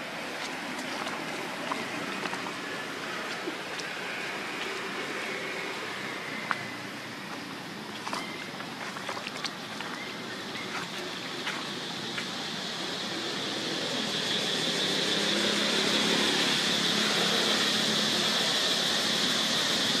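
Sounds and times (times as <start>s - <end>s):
outdoor ambient hiss: 0.0s - 20.0s.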